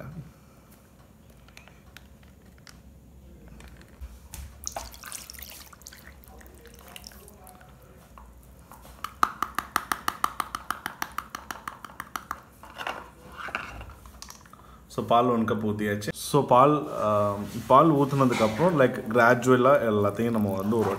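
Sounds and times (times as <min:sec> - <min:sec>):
milk splashing into bowl: 0:04.3 - 0:07.8, 0:19.9 - 0:20.9.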